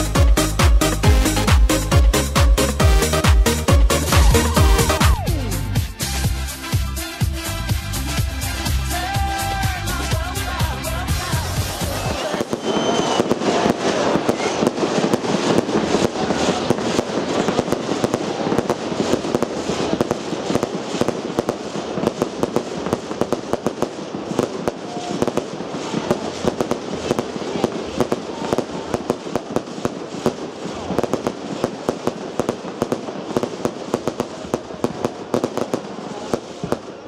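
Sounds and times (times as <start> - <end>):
music with heavy beat: 0.0 - 12.2
fireworks crackling and popping: 0.0 - 37.0.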